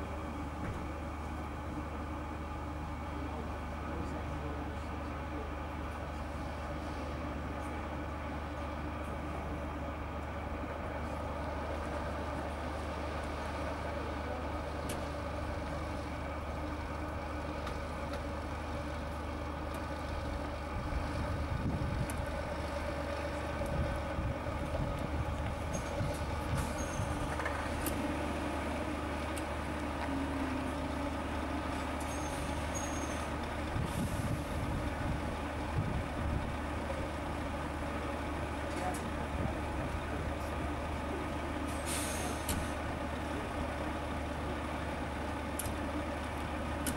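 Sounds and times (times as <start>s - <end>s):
truck diesel engines rumbling: 0.0s - 46.9s
brief high squeaks: 26.6s - 27.2s, 32.1s - 33.2s.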